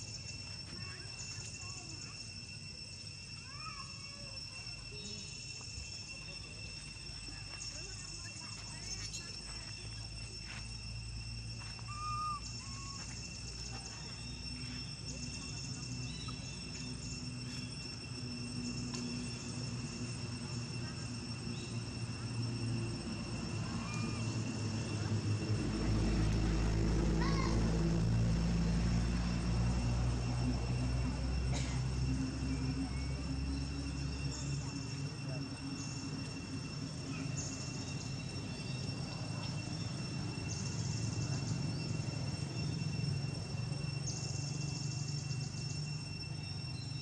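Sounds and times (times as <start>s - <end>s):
high insect drone: 0.0s - 47.0s
low rumble: 22.6s - 35.0s.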